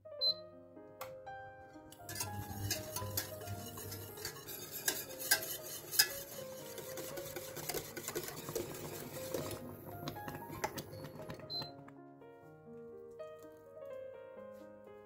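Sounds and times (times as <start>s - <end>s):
whisk clicking and scraping in pot: 2.0s - 11.8s.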